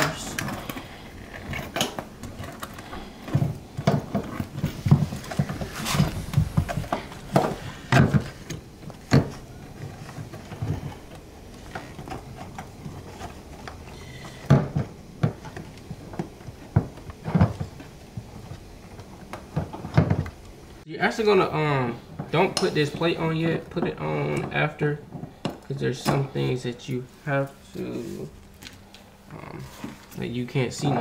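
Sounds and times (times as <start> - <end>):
plastic parts knocking and clicking: 0.0 - 20.4, 22.2 - 26.3.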